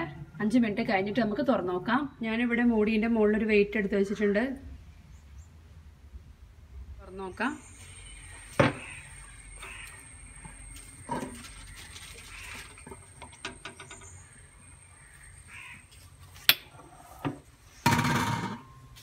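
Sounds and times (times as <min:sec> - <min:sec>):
crows cawing: 0:08.5 - 0:13.0, 0:14.2 - 0:16.0.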